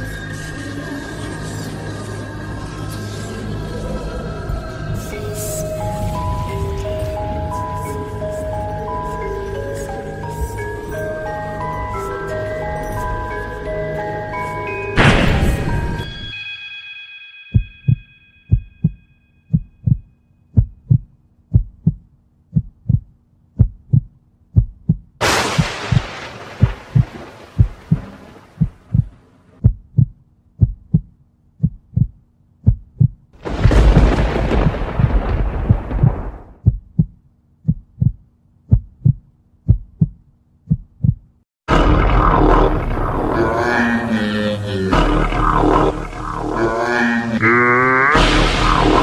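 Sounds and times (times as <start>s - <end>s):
low steady drone: 0.0s - 16.4s, 41.7s - 49.0s
heartbeat thumps: 17.6s - 25.2s, 25.9s - 41.4s
loud dense music: 41.7s - 47.4s, 48.2s - 49.0s
rushing noise hit: 48.2s - 49.0s.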